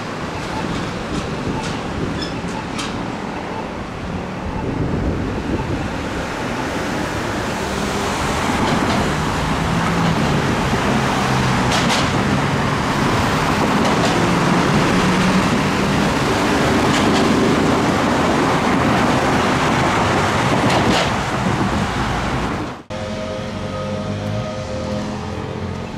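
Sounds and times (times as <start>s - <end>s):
cars driving past: 6.9s - 25.9s.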